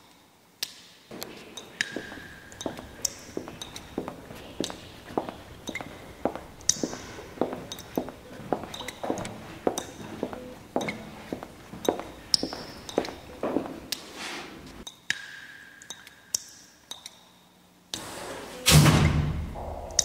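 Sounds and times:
sharp taps and clinks: 0:01.5 - 0:10.1.

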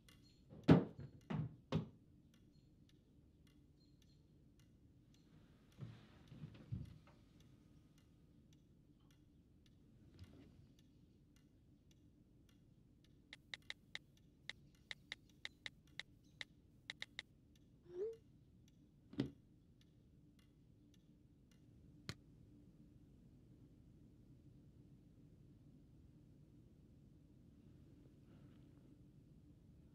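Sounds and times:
smartphone keyboard clicks: 0:13.4 - 0:14.0, 0:14.9 - 0:17.2.

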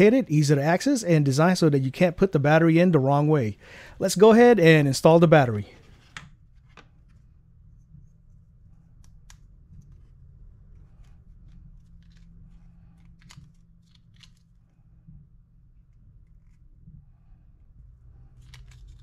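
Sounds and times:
small plastic clicks and handling: 0:08.8 - 0:14.8.

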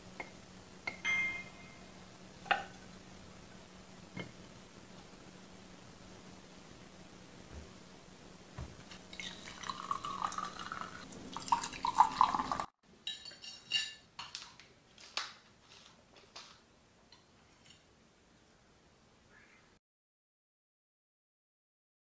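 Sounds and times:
forks clinking on plates: 0:13.0 - 0:14.5.

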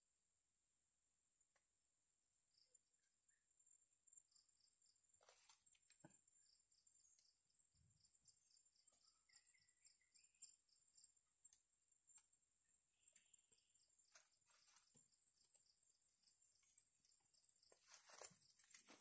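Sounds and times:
rhythmic insect chirping: 0:06.2 - 0:19.0.

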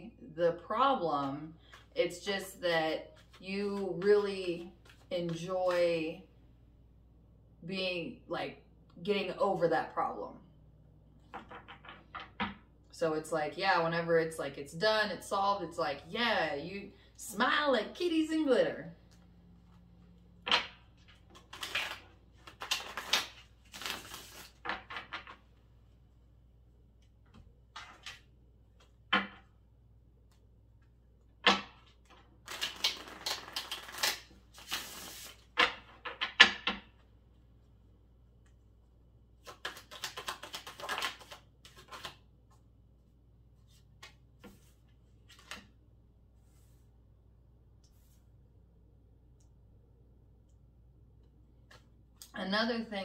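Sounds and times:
cards being shuffled: 0:03.1 - 0:05.8, 0:20.5 - 0:25.4, 0:31.6 - 0:36.6, 0:39.4 - 0:42.6, 0:43.6 - 0:45.7.

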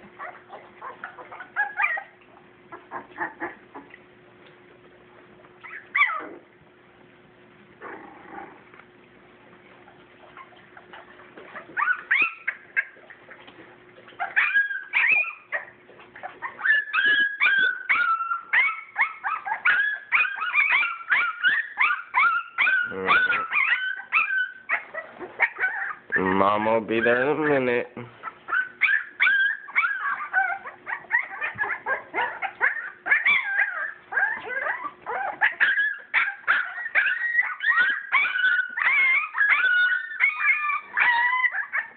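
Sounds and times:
puppies whimpering and crying: 0:00.0 - 0:06.8, 0:09.7 - 0:41.9
puppy loud yelp: 0:00.2 - 0:03.6, 0:05.6 - 0:06.4, 0:11.5 - 0:13.0, 0:14.2 - 0:26.4, 0:28.2 - 0:41.9.

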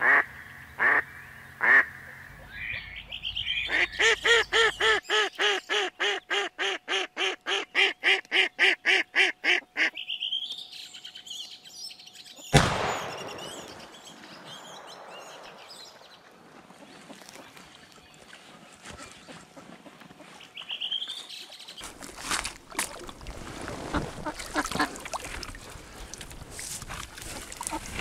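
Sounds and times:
duck quacking: 0:01.6 - 0:01.9, 0:03.6 - 0:10.0
shotgun shot echoing: 0:12.5 - 0:16.0.

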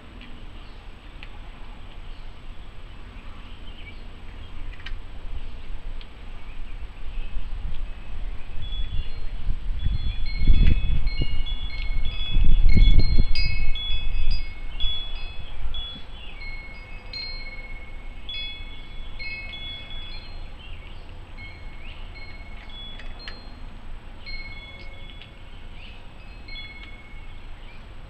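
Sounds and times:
low rumbling noise: 0:00.0 - 0:28.0
metal wind chimes ringing: 0:08.6 - 0:27.7.

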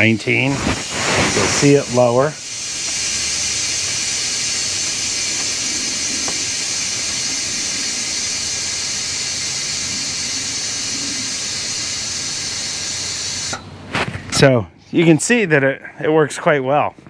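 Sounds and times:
compressed air hissing: 0:00.0 - 0:13.7.

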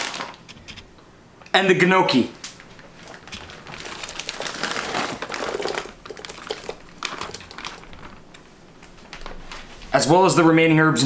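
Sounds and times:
plastic bag crinkling: 0:00.0 - 0:00.7, 0:02.5 - 0:09.7.

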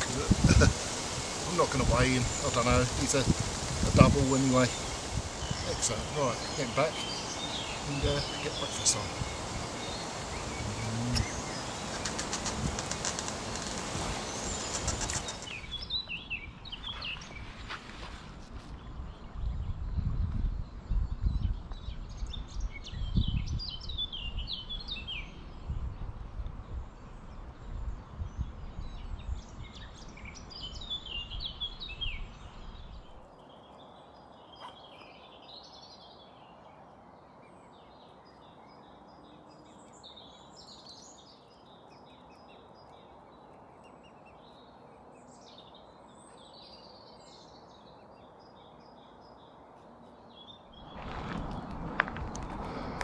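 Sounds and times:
wind rumble on microphone: 0:00.0 - 0:33.2, 0:50.6 - 0:53.0
songbirds singing and chirping: 0:00.0 - 0:53.0.

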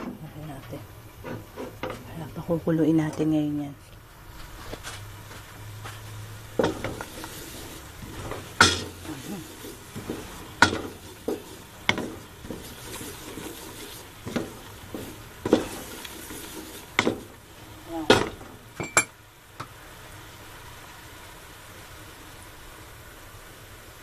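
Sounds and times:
utensil scraping a cooking pot: 0:01.2 - 0:02.2, 0:06.0 - 0:18.8
hiss of heating liquid: 0:04.2 - 0:24.0.

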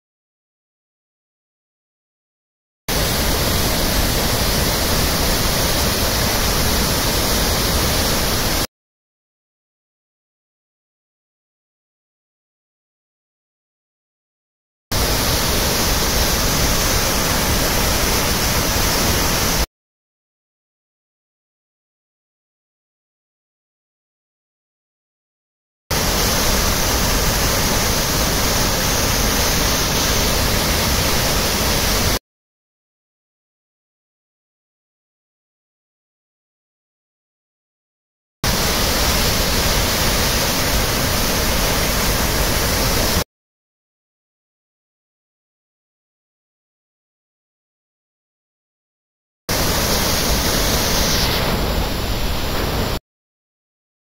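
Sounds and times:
waterfall rushing: 0:02.9 - 0:08.7, 0:15.0 - 0:19.7, 0:25.9 - 0:32.2, 0:38.5 - 0:43.2, 0:49.5 - 0:53.0.

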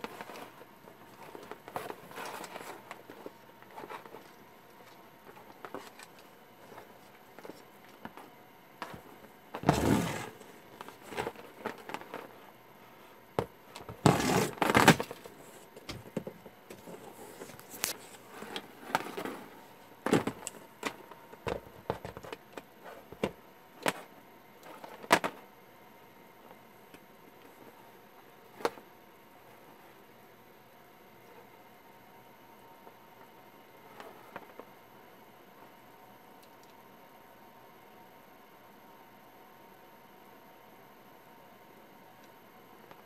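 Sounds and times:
rustling: 0:00.0 - 0:12.6.

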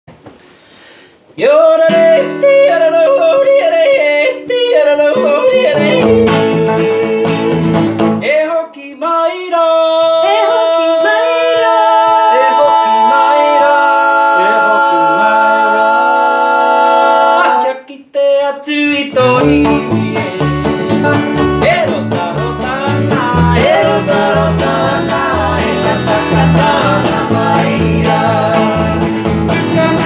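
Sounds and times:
voices singing together: 0:01.4 - 0:08.0, 0:09.1 - 0:30.0
guitars playing: 0:04.4 - 0:08.3, 0:19.1 - 0:30.0.

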